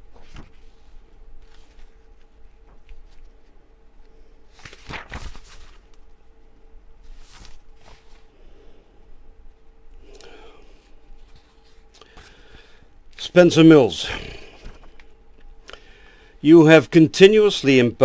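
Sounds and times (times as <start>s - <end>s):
soft rustles and handling noises: 0.0s - 6.4s, 7.0s - 9.7s, 10.7s - 12.9s
faint steady hum: 0.0s - 18.0s.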